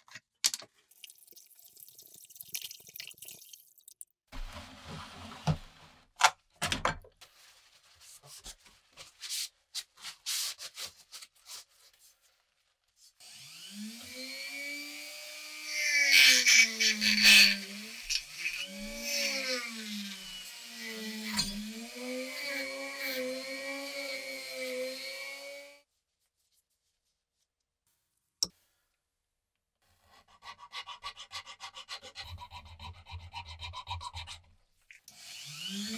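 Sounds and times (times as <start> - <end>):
rotary tool motor whine: 13.2 - 25.8, 35.1 - 35.9.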